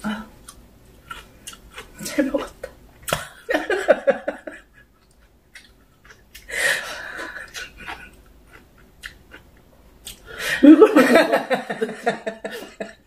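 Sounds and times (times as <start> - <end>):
woman laughing softly: 10.4 - 13.0.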